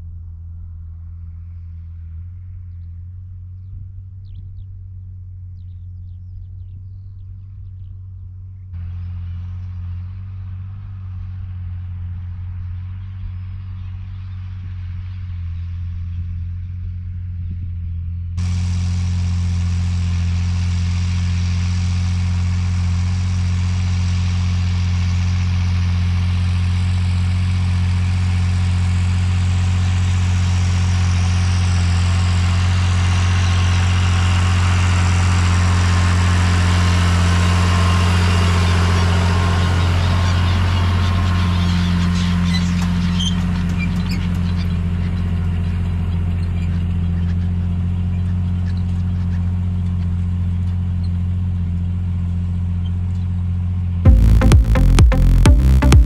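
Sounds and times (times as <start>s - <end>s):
tractor diesel engine under load: 18.4s - 53.2s.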